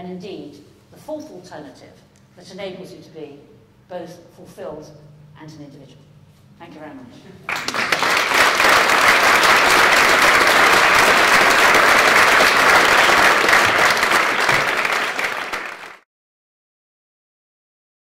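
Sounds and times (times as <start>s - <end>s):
audience applauding: 7.5s - 16.0s.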